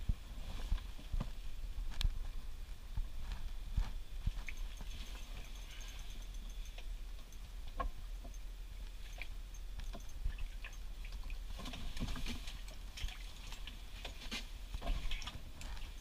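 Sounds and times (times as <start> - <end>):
steady low hum: 0.0 - 16.0
fishing tackle clicks and rustles: 3.3 - 16.0.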